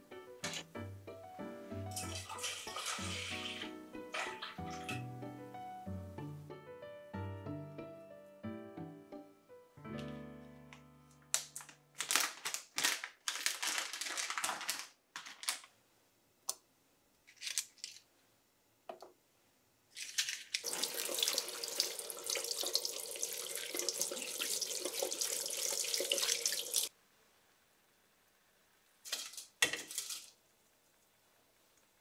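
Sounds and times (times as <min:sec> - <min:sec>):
tap water running into sink: 0:01.9 - 0:05.1, 0:20.6 - 0:26.9.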